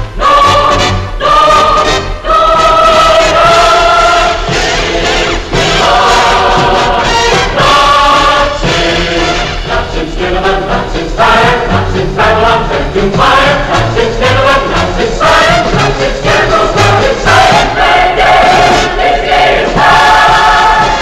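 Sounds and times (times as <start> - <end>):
choir singing: 0.0 - 21.0
orchestral music: 0.0 - 21.0.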